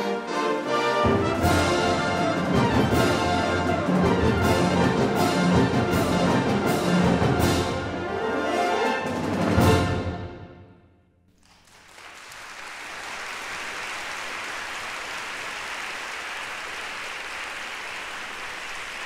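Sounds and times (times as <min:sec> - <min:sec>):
audience applause: 0:11.3 - 0:19.0.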